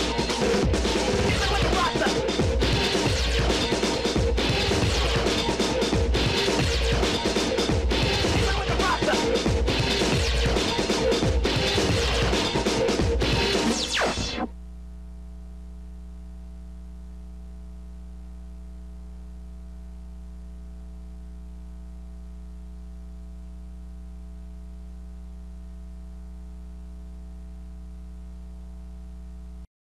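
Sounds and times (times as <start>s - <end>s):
loud music: 0.0s - 14.5s
electrical mains hum: 14.5s - 29.7s.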